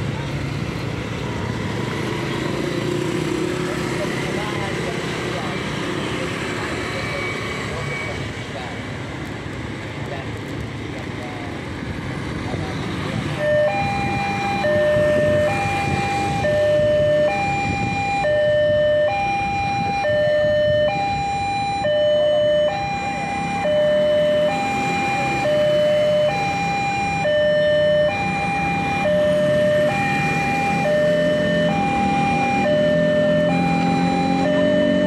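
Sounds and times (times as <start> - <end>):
motorbikes and road traffic: 0.0 - 35.0
two-tone crossing alarm: 13.3 - 35.0.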